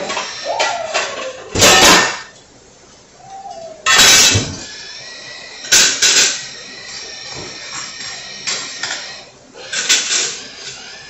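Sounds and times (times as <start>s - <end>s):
kitchenware clattering: 0.0s - 2.4s, 3.4s - 4.7s, 5.7s - 6.4s, 7.3s - 10.8s.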